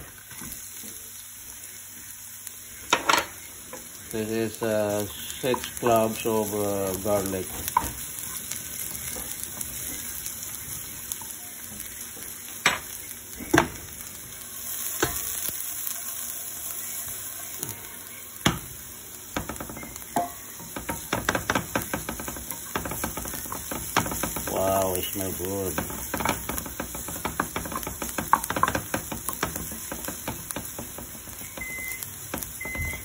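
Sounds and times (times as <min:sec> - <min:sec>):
garlic sizzling in frying pan: 0:00.0 - 0:33.0
spatula knocking against pan: 0:19.4 - 0:24.5, 0:25.7 - 0:31.7.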